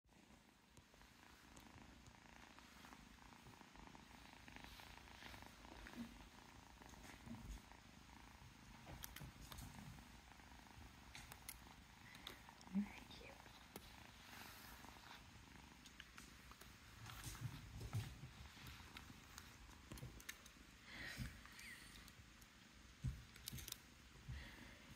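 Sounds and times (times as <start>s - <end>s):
kitten purring: 0.1s - 24.9s
faint clicks: 8.8s - 10.0s, 11.0s - 12.8s, 15.8s - 23.9s.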